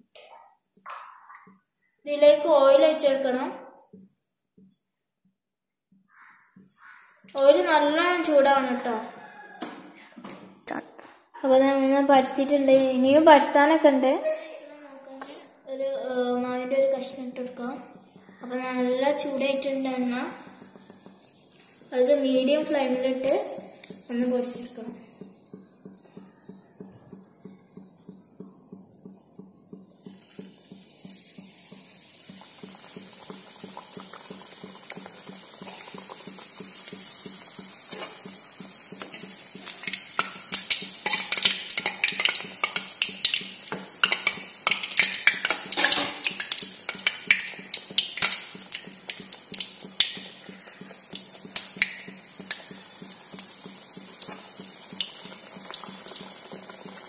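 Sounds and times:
dough crackling in hot oil: 16.9s - 57.0s.

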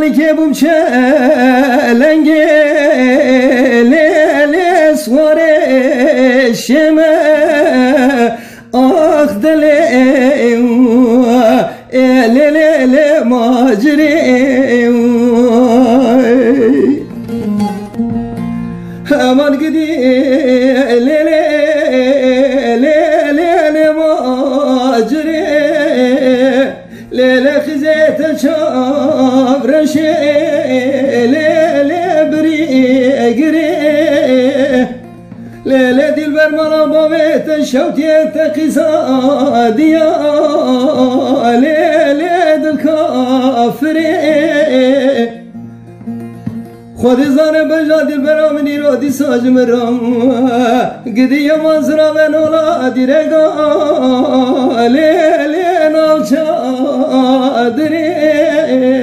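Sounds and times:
person singing ornamented melody: 0.0s - 45.6s
plucked string accompaniment: 0.0s - 59.0s.

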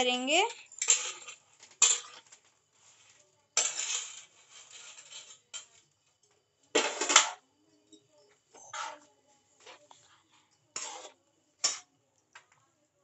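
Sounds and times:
metal spatula scraping metal pan: 0.8s - 5.8s, 8.6s - 9.8s, 10.7s - 11.9s.

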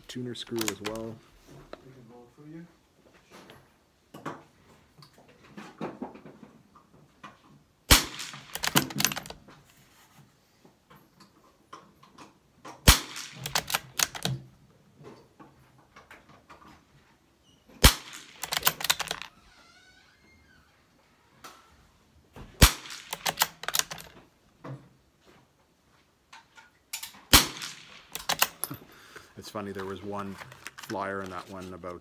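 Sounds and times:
rifle bolt metallic clicks: 0.5s - 1.1s, 7.9s - 9.4s, 12.9s - 14.4s, 17.8s - 19.3s, 22.6s - 24.2s, 27.0s - 28.8s
rifle shots: 7.9s - 9.3s, 12.8s - 14.3s, 17.8s - 19.2s, 22.6s - 24.0s, 27.3s - 28.7s.

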